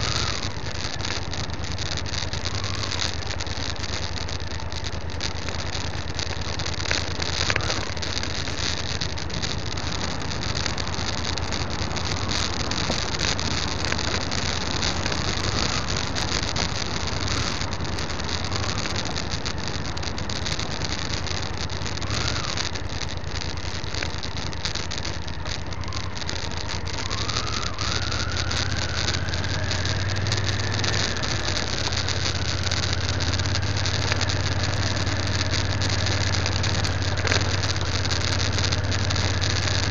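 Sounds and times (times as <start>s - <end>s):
motorcycle engine running: 0.0s - 39.9s
rising whine: 0.0s - 39.9s
tyre and wind noise: 4.4s - 39.9s.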